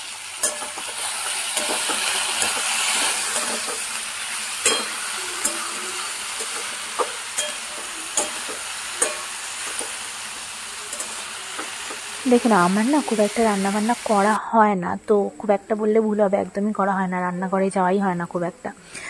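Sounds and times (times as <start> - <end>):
potatoes sizzling in hot oil: 0.0 - 14.4.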